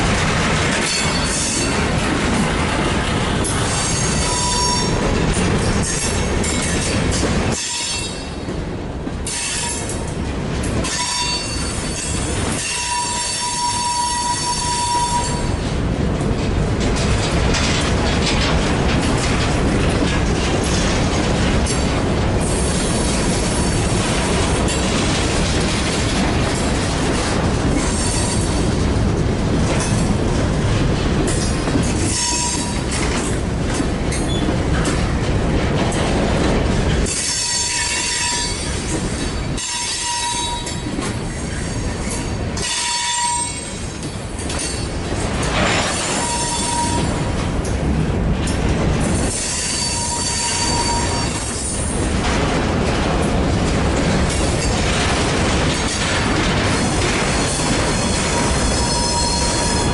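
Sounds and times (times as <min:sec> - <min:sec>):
freight train wheels clattering: 0:00.0 - 0:59.9
high-pitched wheel squeals: 0:03.9 - 0:05.0, 0:10.9 - 0:15.4, 0:46.1 - 0:47.1, 0:49.4 - 0:51.4, 0:58.0 - 0:59.9.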